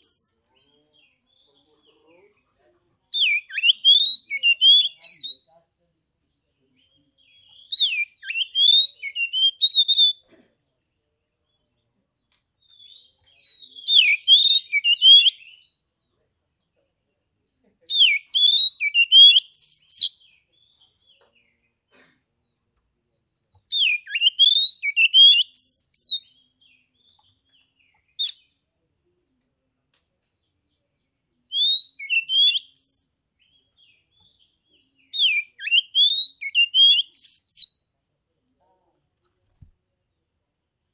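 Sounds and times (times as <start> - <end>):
bird singing whistled phrases: 0.0 - 0.4, 3.1 - 5.5, 7.3 - 10.2, 12.7 - 15.8, 17.9 - 20.3, 23.7 - 26.3, 31.5 - 34.0, 35.1 - 37.9.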